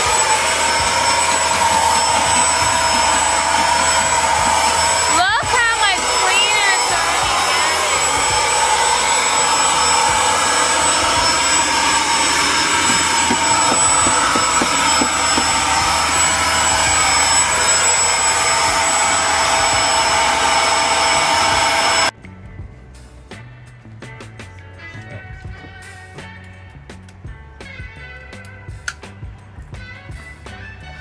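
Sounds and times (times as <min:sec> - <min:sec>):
vacuum cleaner motor running: 0:00.0 - 0:22.1.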